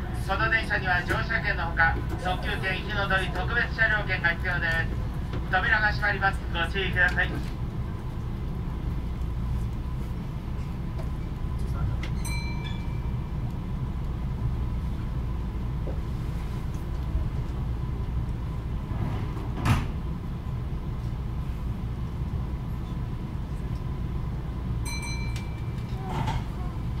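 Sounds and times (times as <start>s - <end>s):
train equipment hum: 0.0s - 27.0s
train doors closing thump: 18.9s - 20.1s.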